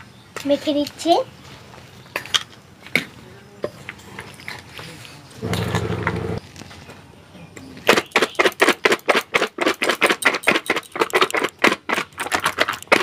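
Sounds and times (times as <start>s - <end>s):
steady hum: 5.4s - 6.4s
chickpeas rattling in steel dishes: 8.0s - 13.0s.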